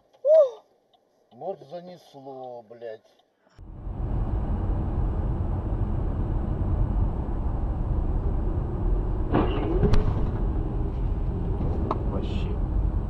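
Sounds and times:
car engine and tyre rumble: 0:03.5 - 0:13.0.

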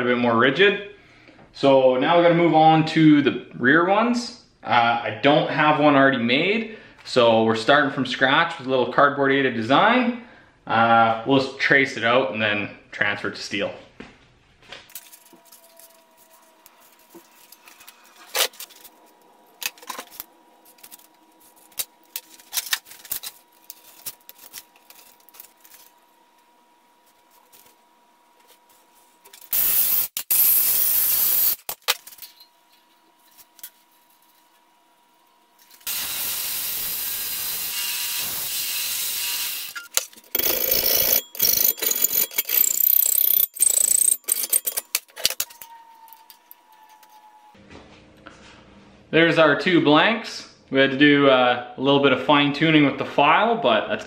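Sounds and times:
metal cutting hiss: 0:29.5 - 0:31.6, 0:35.9 - 0:39.8.

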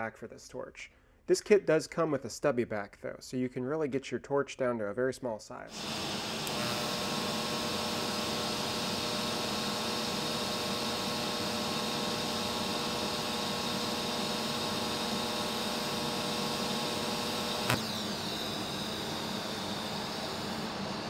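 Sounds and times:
welding arc hissing buzz: 0:05.7 - 0:21.0.

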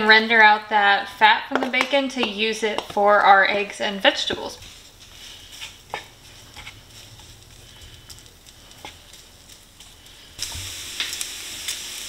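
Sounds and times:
bacon sizzling in a skillet: 0:03.5 - 0:12.0.

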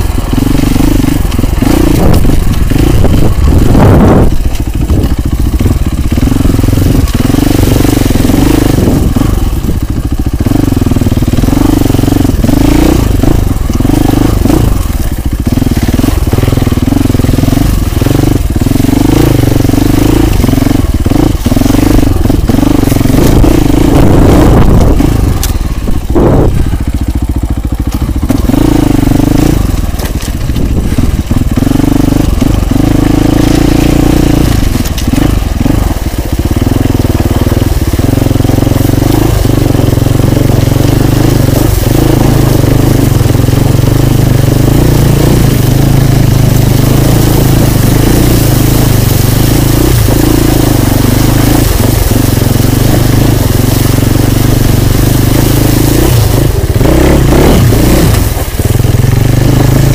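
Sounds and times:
motorcycle engine running: 0:00.0 - 0:59.9
bike knocking over rough ground: 0:29.8 - 0:31.6, 0:32.4 - 0:36.6.

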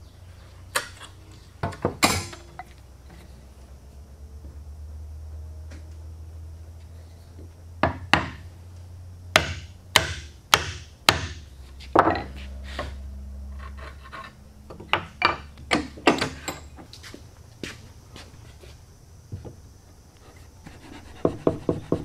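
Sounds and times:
steady low hum: 0:00.0 - 0:22.0
mallet striking wood chisel: 0:09.4 - 0:11.4.

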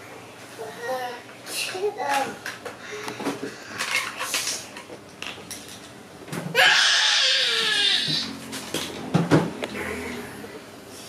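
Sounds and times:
child crying out: 0:06.5 - 0:08.4.

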